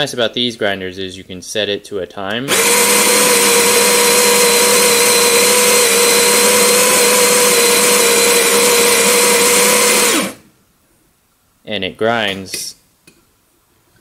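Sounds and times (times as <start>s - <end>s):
coffee grinder motor whine: 2.5s - 10.4s.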